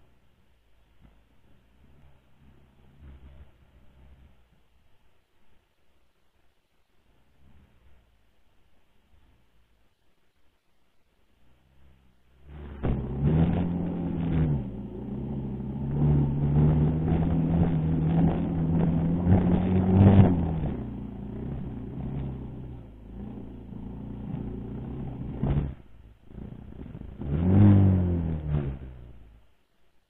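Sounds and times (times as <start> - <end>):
dirt bike engine running: 12.5 - 28.9.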